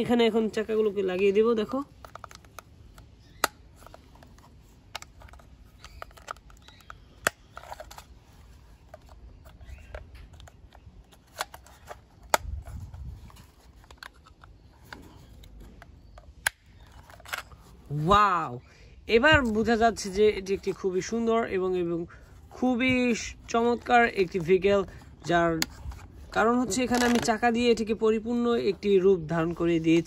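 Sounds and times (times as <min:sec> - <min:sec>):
soft rubbing of plastic parts: 0:00.0 - 0:18.2, 0:19.0 - 0:30.0
plastic toy parts clicking: 0:01.2 - 0:08.1.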